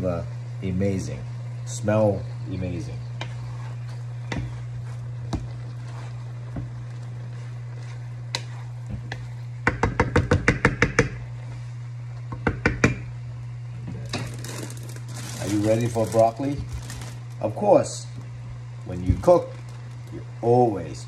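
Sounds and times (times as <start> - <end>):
steady low hum: 0.0 - 21.0
wooden spoon knocking metal pan: 9.6 - 11.2.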